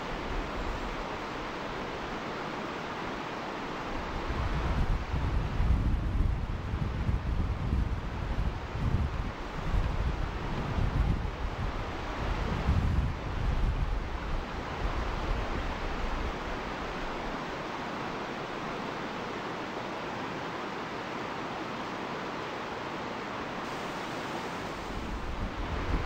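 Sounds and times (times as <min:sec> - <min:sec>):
wind buffeting microphone: 0:04.1 - 0:16.4, 0:24.9 - 0:26.0
river rapids rushing: 0:14.4 - 0:26.0.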